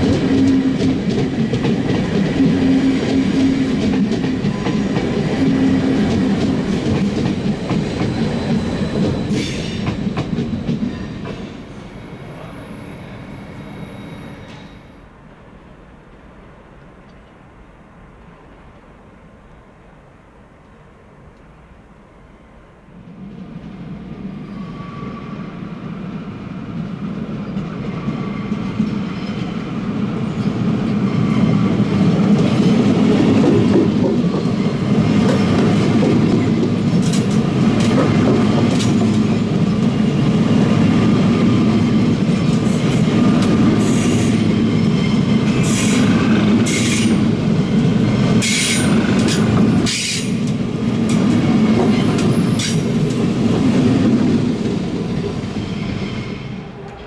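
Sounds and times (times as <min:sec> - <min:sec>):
electric train running past: 0:00.0 - 0:57.0.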